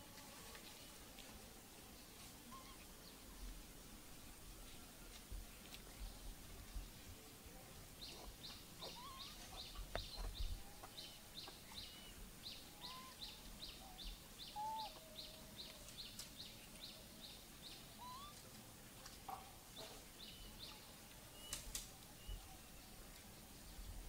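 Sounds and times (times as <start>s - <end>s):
faint bird chirps: 2.5s - 3.2s, 8.0s - 18.4s, 19.8s - 23.0s.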